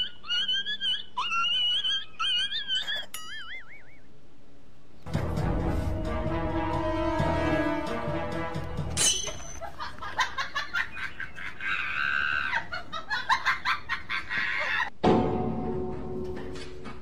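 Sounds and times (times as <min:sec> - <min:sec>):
hen squawking: 0:00.0 - 0:04.1.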